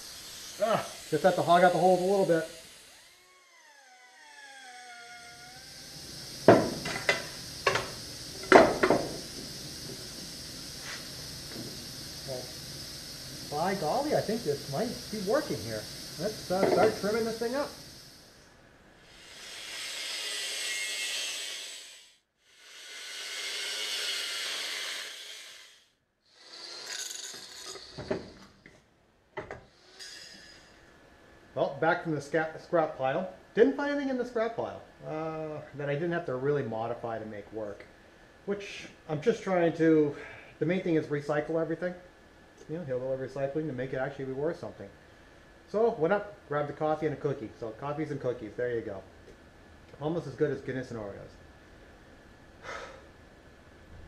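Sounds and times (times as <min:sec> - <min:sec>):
angle grinder cutting steel: 0:00.0 - 0:12.4, 0:13.4 - 0:17.9, 0:19.2 - 0:25.8, 0:26.4 - 0:28.3, 0:29.8 - 0:30.8.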